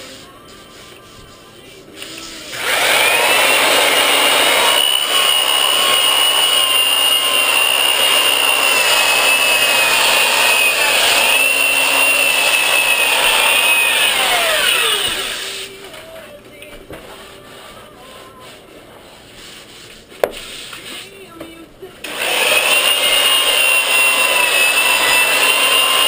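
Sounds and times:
sander motor whining: 2.5s - 15.5s, 22.1s - 26.0s.

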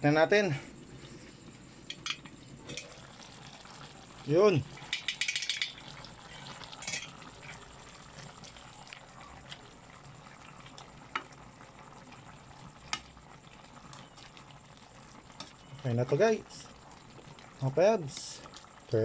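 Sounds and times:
stew simmering and bubbling: 0.0s - 19.0s
pot lid clattering: 4.8s - 5.8s
ladle clicking against pot: 4.9s - 5.7s.

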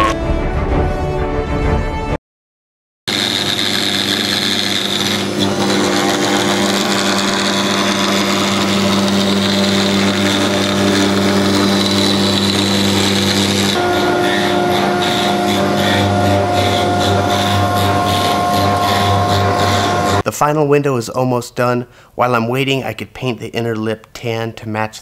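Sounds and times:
router spindle milling plastic: 3.1s - 20.2s.

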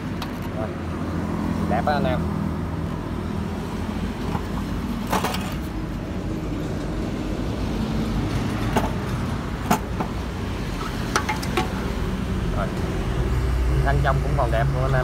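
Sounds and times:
metallic clicks and knocks: 0.0s - 0.6s, 10.8s - 11.8s.

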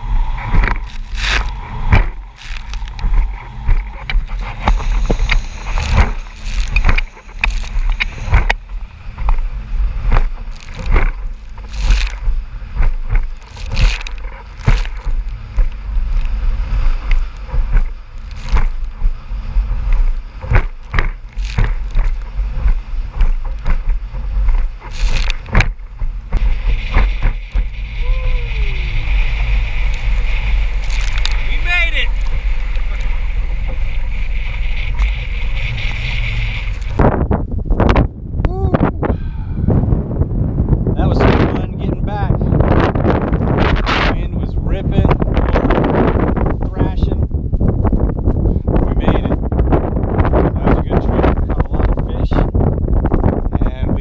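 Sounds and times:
boat hull slapping on waves: 0.0s - 38.0s
rush of water and wind: 0.0s - 54.0s
steady low rumble: 0.0s - 54.0s.

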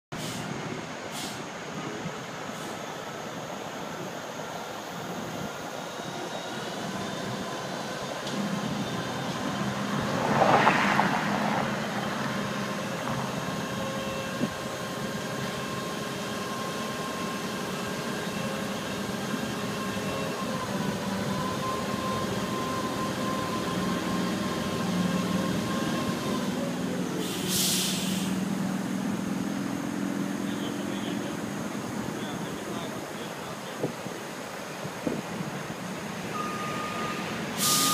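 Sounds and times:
sharp hiss of air: 0.2s - 1.6s, 27.2s - 28.4s, 37.5s - 37.9s
forklift engine running: 11.1s - 27.6s.

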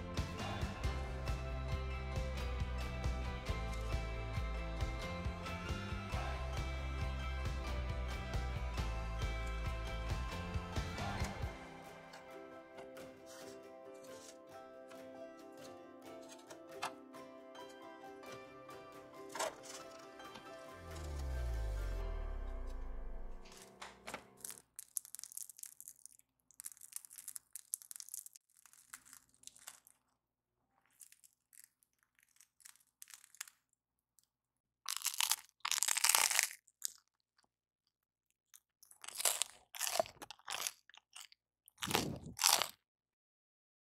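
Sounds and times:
crusty bread crackling and tearing: 24.4s - 33.8s, 34.9s - 37.2s, 38.8s - 42.8s.

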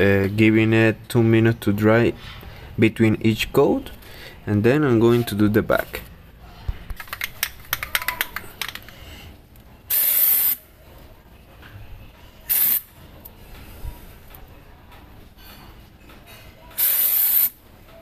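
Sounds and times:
aerosol can rattling: 7.0s - 8.9s
aerosol spray bursts: 9.9s - 10.6s, 12.5s - 12.9s, 16.8s - 17.6s.

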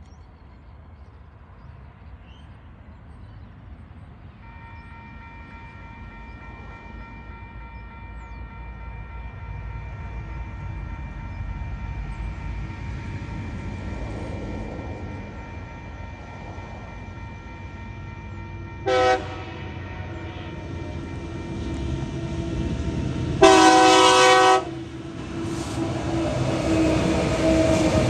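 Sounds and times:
diesel freight train rumbling: 0.0s - 28.0s
high-pitched warning tone: 4.4s - 23.4s.

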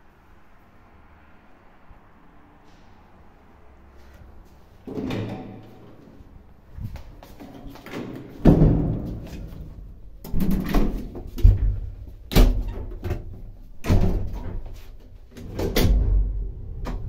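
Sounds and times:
elevator car knocking and clunking: 4.8s - 6.2s, 7.4s - 17.0s
low hum: 15.8s - 17.0s.

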